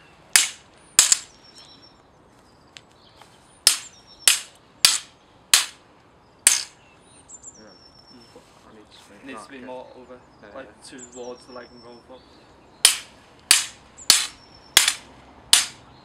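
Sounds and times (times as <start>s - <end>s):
sword blades clashing: 0.4s - 1.3s, 3.7s - 5.8s, 6.5s - 6.8s, 12.9s - 15.8s.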